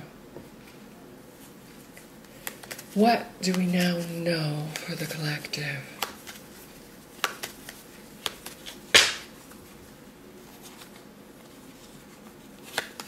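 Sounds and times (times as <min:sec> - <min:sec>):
cards rustling: 0:01.4 - 0:05.2, 0:05.9 - 0:09.8, 0:10.4 - 0:13.0
cards clicking and snapping: 0:02.0 - 0:02.9, 0:07.2 - 0:09.3, 0:12.6 - 0:13.0.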